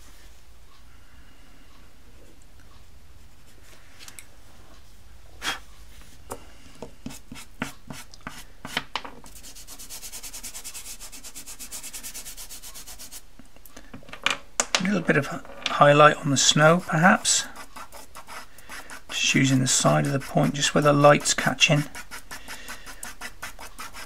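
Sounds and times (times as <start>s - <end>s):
pencil scratching on paper: 7.0s - 8.5s, 9.3s - 13.2s, 16.3s - 24.0s
rubbing across paper: 9.3s - 13.3s, 16.4s - 24.0s.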